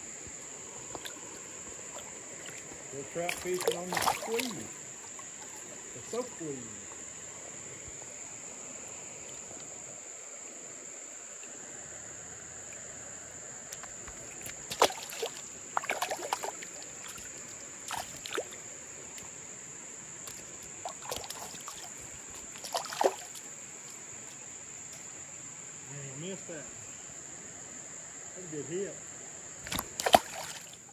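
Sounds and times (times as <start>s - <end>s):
high-pitched insect drone: 0.0s - 19.6s
faint rushing water: 0.0s - 30.9s.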